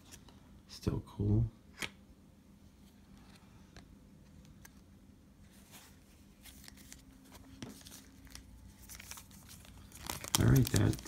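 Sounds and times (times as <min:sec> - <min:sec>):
trading cards rustling and ticking: 0:05.6 - 0:11.0.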